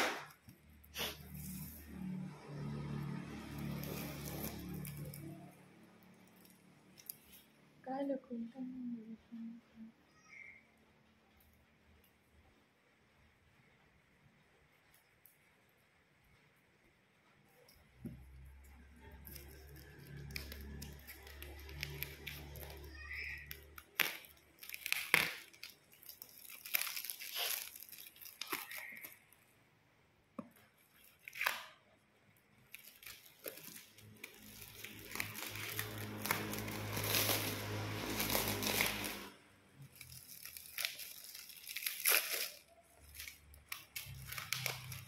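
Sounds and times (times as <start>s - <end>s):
scissors snipping shrink wrap: 0.0s - 7.6s, 17.6s - 29.5s, 30.5s - 45.0s
plastic wrap tearing and crinkling: 0.0s - 8.4s, 17.5s - 29.6s, 30.4s - 45.0s.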